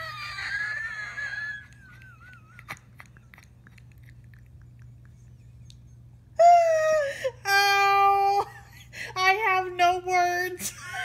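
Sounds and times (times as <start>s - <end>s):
high-pitched wheezing laugh: 0.0s - 3.6s.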